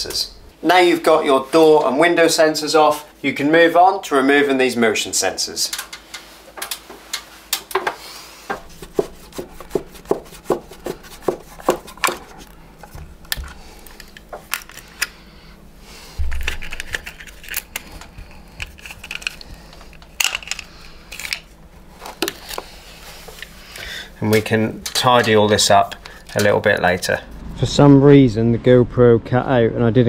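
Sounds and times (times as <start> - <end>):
dull low thumps: 16.2 - 16.9, 27.2 - 29.7.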